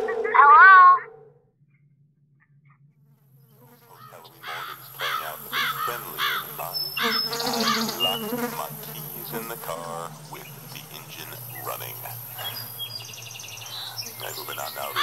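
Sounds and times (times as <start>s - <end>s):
steady low hum: 0.0s - 15.0s
insects buzzing and chirping: 3.2s - 15.0s.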